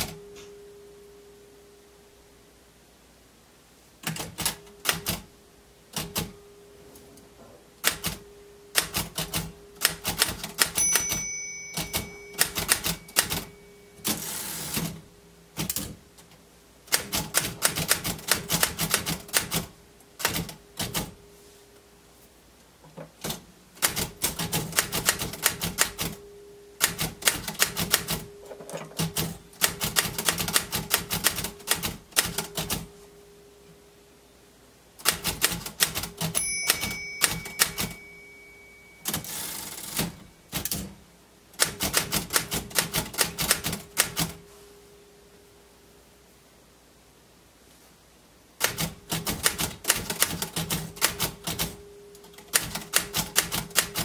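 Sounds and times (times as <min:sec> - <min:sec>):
typewriter margin bell: 0:08.0 - 0:15.0, 0:24.3 - 0:26.2, 0:26.8 - 0:32.9, 0:35.4 - 0:40.4, 0:49.2 - 0:54.0
typewriter key strikes: 0:08.8 - 0:14.2, 0:35.0 - 0:38.2, 0:48.6 - 0:54.0.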